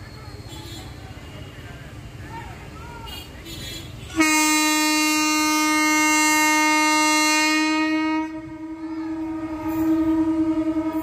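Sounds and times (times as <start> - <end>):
locomotive horn: 3.6 - 11.0.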